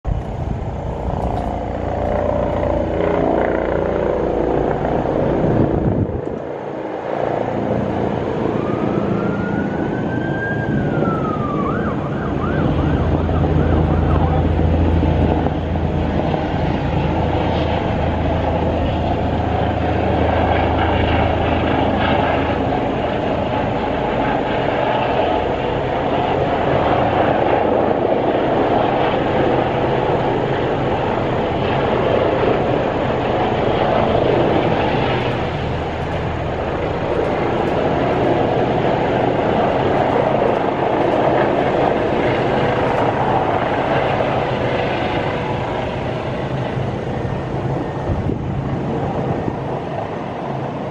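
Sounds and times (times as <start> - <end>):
helicopter rotor and engine: 0.0 - 50.9
siren wailing and yelping: 8.4 - 14.6.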